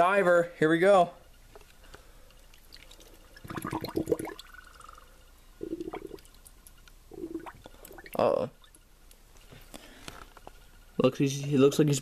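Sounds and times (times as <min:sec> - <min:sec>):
water sloshing and gurgling: 0:02.4 - 0:08.8
air bubbling: 0:02.5 - 0:08.8.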